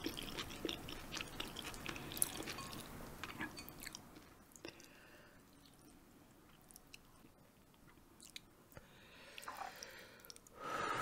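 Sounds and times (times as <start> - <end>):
quiet chewing: 0.0 - 10.6.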